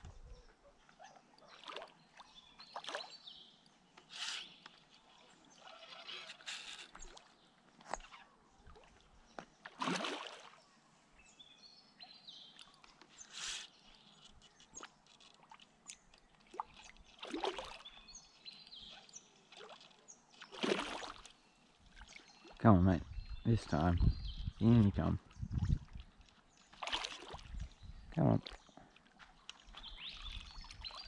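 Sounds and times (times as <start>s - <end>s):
fish splashing at water surface: 9.7s - 10.6s, 20.5s - 21.3s.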